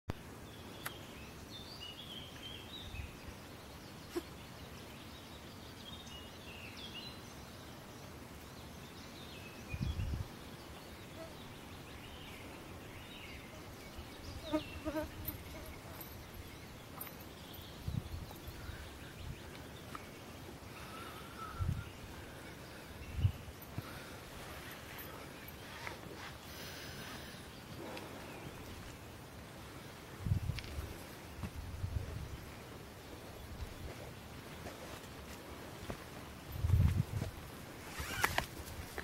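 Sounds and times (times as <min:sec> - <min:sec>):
songbirds singing: 0:00.1 - 0:39.0
footsteps: 0:33.8 - 0:37.4.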